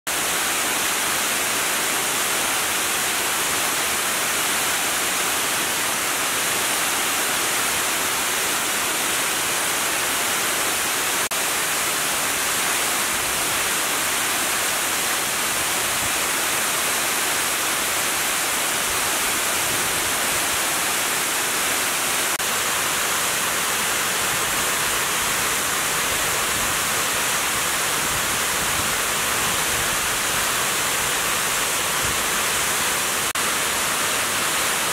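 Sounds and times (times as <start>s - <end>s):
water cascading down spillway: 0.1s - 34.9s.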